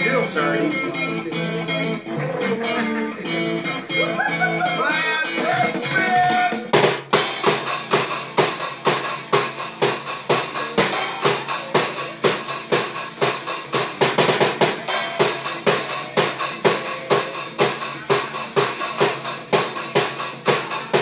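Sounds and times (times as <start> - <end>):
pitched music: 0.0 - 21.0
fast bass drum and snare beat: 5.3 - 21.0.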